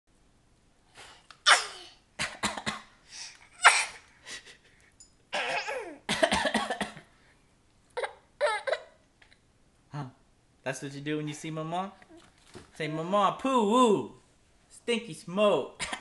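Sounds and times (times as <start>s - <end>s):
baby coughing: 1.4s - 2.9s, 3.6s - 4.0s, 5.3s - 7.0s, 8.0s - 9.0s, 15.8s - 16.0s.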